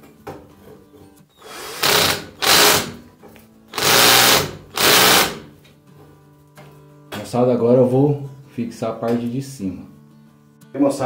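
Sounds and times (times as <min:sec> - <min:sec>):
cordless drill driving screw: 0:01.4 - 0:03.0, 0:03.7 - 0:05.4.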